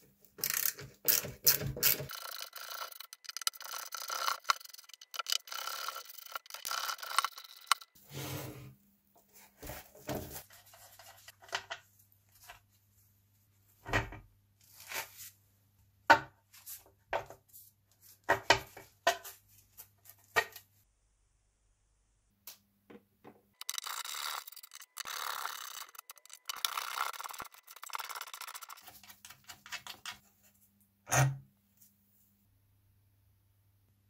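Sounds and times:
sharp clicks and knocks: 0:00.4 - 0:08.0, 0:23.6 - 0:30.2
rough scraping or tearing: 0:23.6 - 0:29.4.

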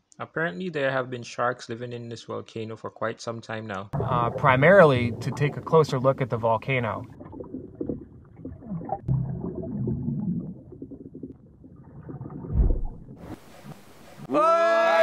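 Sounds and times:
underwater rumbling and gurgling: 0:04.0 - 0:14.3
deep thud: 0:12.5 - 0:13.2.

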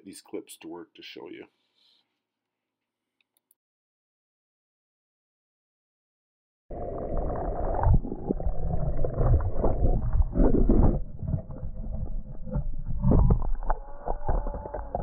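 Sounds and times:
surf crashing underwater: 0:06.7 - 0:15.0.

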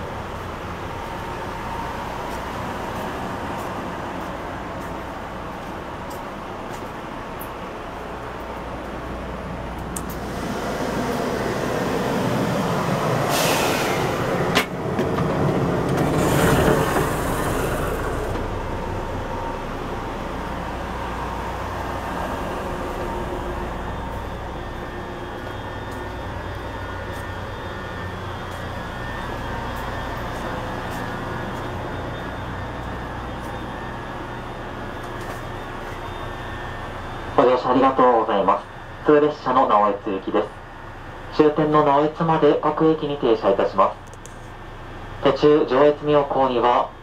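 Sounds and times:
train car hum: 0:00.0 - 0:47.0
rushing noise: 0:10.0 - 0:38.1.

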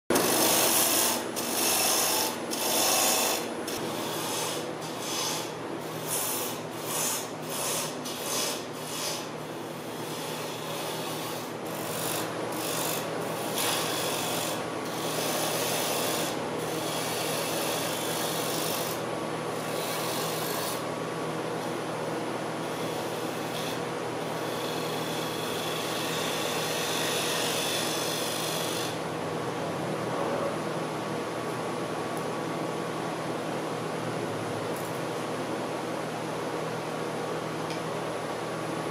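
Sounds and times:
lathe humming: 0:00.1 - 0:05.4
turning tool cutting wood: 0:00.1 - 0:05.5, 0:10.0 - 0:19.0.

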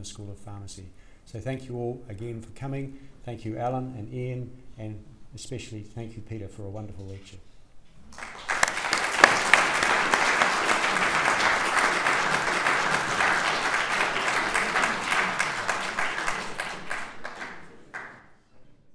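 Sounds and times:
audience applauding: 0:08.1 - 0:18.3.

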